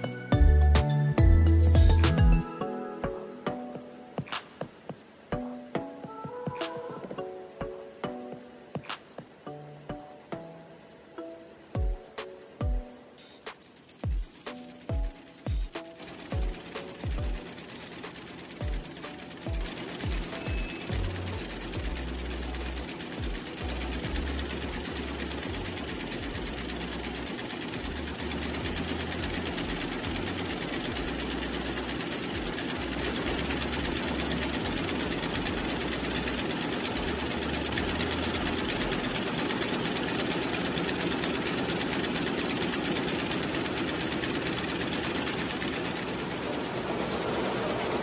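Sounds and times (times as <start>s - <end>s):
embroidery machine clattering: 11.2s - 48.0s.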